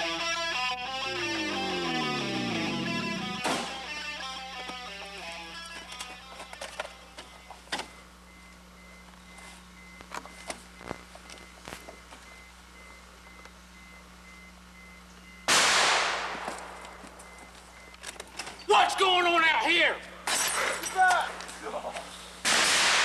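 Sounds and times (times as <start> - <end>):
gunshot: 3.4 - 3.8, 15.5 - 16.8, 22.4 - 23.0.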